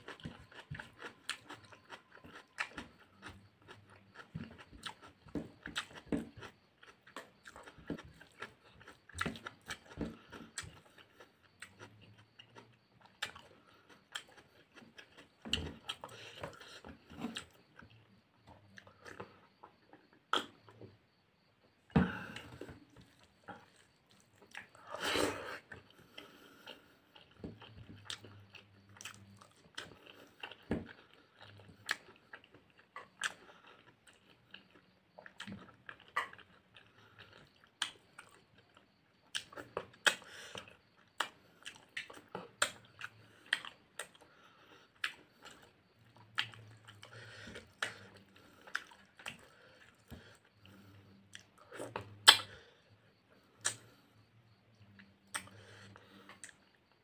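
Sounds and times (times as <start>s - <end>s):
chewing and lip-smacking: 0.0s - 20.9s, 22.3s - 57.0s
wet mouth clicks: 51.4s - 52.5s, 53.6s - 53.9s.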